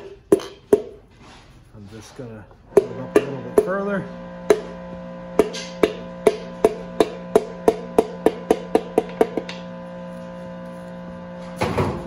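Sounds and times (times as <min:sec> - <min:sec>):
sharp knocks of piston tapping: 0:05.4 - 0:09.6.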